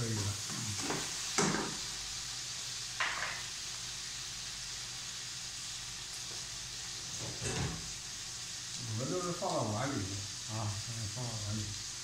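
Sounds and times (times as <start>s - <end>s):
greens sizzling in a wok: 0.0s - 12.0s.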